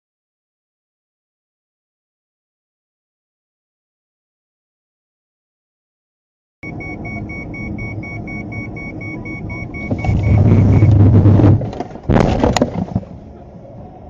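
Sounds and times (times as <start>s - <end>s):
repeating electronic beep: 6.6s - 11.4s
car road noise rumble: 6.6s - 14.0s.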